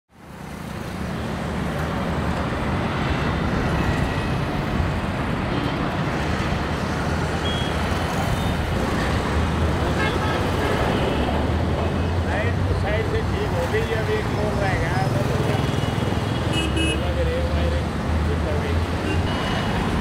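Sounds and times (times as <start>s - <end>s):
road traffic passing: 0.1s - 20.0s.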